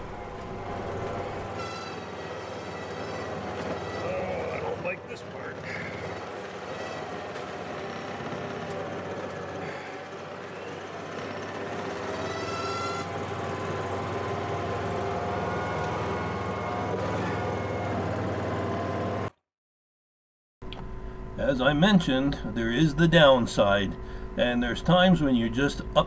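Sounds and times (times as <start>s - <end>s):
four-wheeler engine running: 0.0s - 19.4s.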